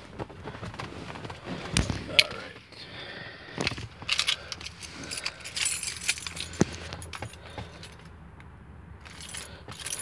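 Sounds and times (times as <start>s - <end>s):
keys jangling: 3.6s - 8.1s, 9.0s - 10.0s.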